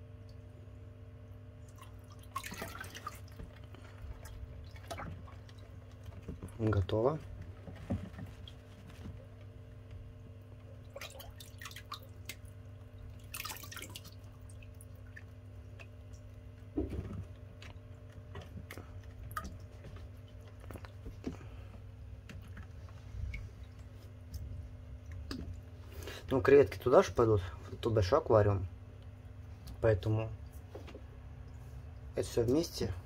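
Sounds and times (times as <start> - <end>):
steady low hum: 0.0 - 33.0
water dripping and splashing: 1.3 - 26.1.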